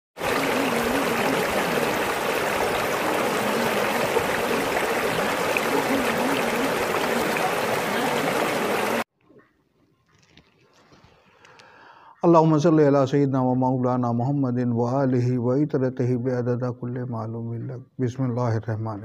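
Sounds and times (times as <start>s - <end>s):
water running over rocks: 0.2s - 9.1s.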